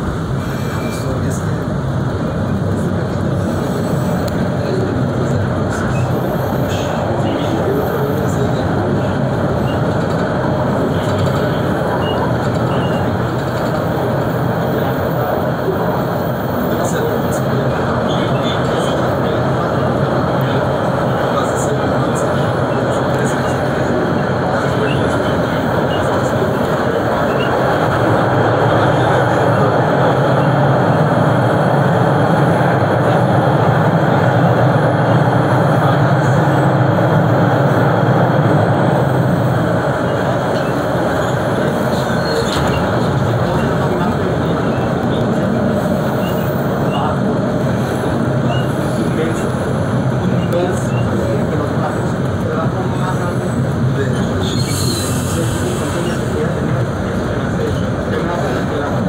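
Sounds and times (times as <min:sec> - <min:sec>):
subway train rumbling on track: 0:00.0 - 0:59.0.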